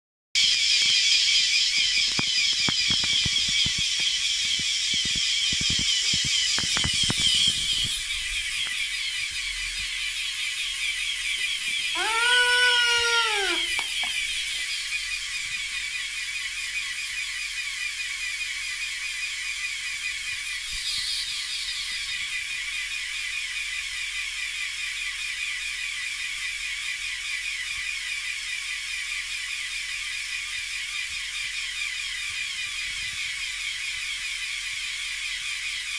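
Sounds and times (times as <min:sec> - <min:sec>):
toy air compressor buzzing: 0:00.5 - 0:35.9
sharp clicks: 0:01.7 - 0:08.8
toy bagpipe reedy note: 0:11.9 - 0:14.0.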